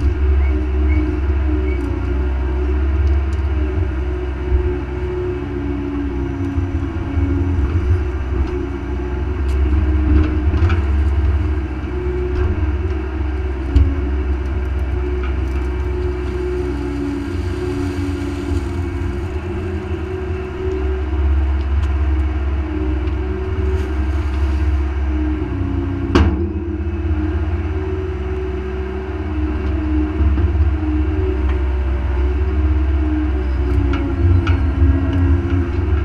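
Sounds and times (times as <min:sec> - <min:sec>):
excavator engine humming: 0:00.0 - 0:36.0.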